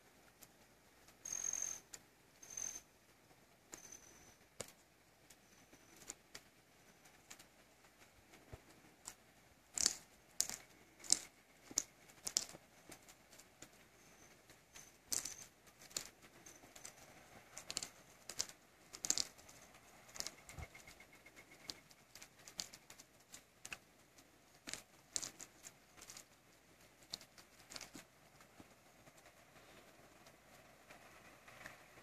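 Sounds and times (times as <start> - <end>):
animal crunching bone: 24.6 - 26.3.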